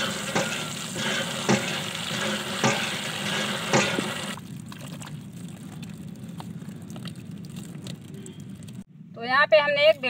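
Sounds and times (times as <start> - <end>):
water splashing: 0.0 - 8.8
water pouring into plastic tub: 4.2 - 8.8
hands squelching seeds in water: 4.4 - 8.8.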